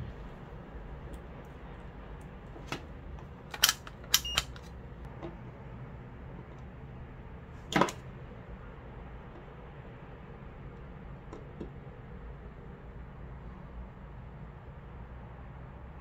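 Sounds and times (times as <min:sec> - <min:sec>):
clips and probes clicking: 0:02.6 - 0:04.8.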